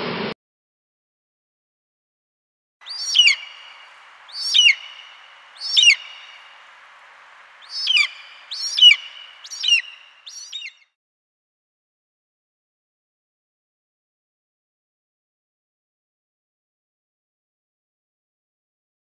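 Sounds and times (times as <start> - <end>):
faint steady hiss: 2.8 - 10.7
kite calling: 2.8 - 10.7.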